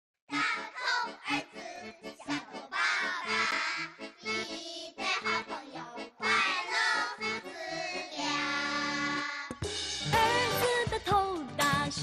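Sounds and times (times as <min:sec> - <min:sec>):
child singing cheerful melody: 0:00.3 - 0:09.5
bright music backing: 0:00.3 - 0:12.0.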